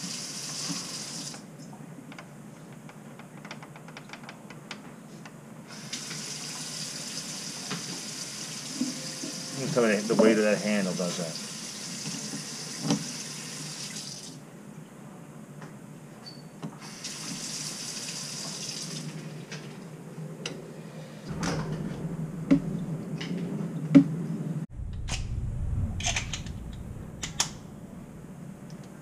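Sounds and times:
water running from faucet: 0.0 - 1.3, 5.7 - 14.4, 16.8 - 19.1.

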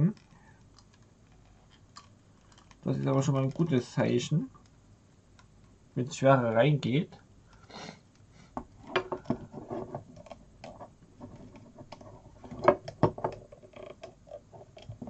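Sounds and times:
small plastic clicks and rubbing: 0.1 - 3.8, 9.2 - 15.0.

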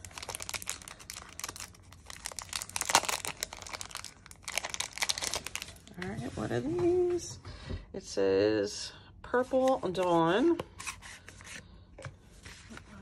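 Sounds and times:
plastic wrapper crinkling: 0.0 - 6.0.

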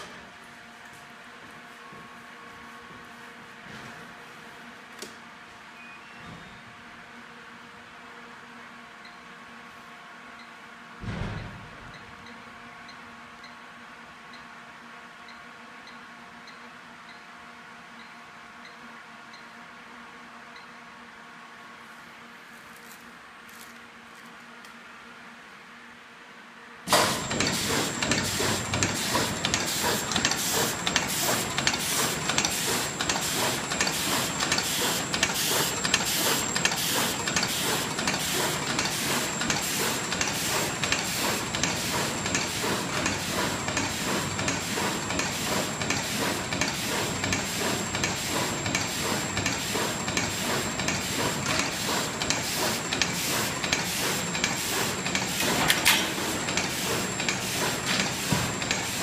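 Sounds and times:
loud knock: 11.0 - 11.7
high machine whine: 26.9 - 59.0
machine clattering strokes: 26.9 - 59.0.

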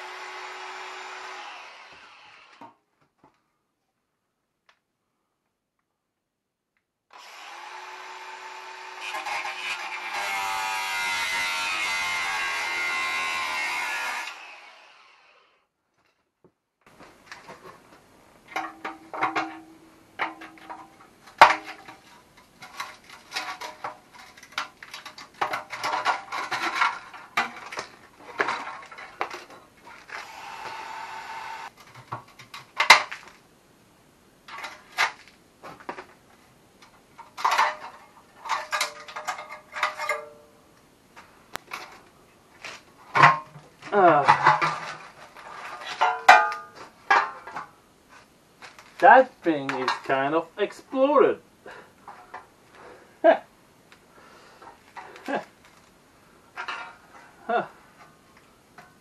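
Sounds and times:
angle grinder cutting steel: 0.0 - 2.6, 7.2 - 15.6, 30.2 - 31.7
metal clanks and scrapes: 18.5 - 30.1, 37.2 - 40.5, 41.6 - 47.7, 56.5 - 57.4.

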